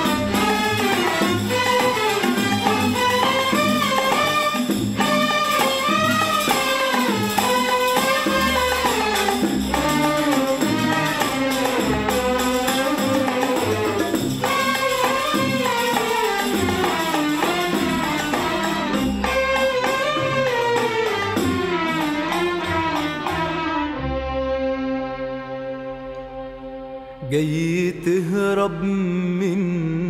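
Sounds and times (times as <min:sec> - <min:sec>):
hand percussion rhythm: 0:00.0 - 0:24.0
orchestral ensemble melody: 0:00.0 - 0:27.6.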